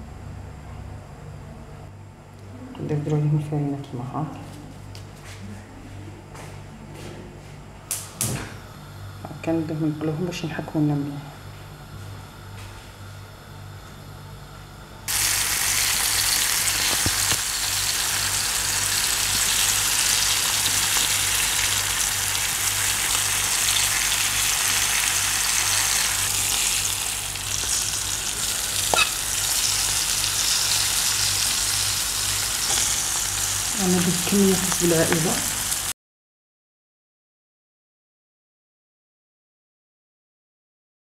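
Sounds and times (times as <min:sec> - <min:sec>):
fish sizzling in oil: 0:15.1 - 0:35.9
sharp oil crackle: 0:15.1 - 0:35.9.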